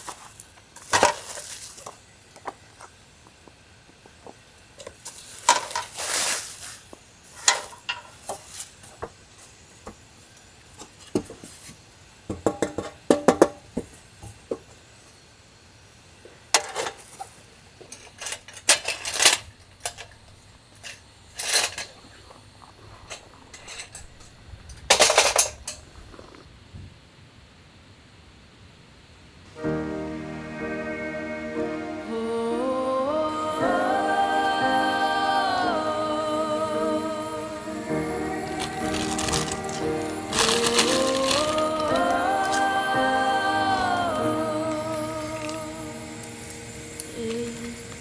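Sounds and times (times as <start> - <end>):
nylon case rustling: 38.6 - 42.6.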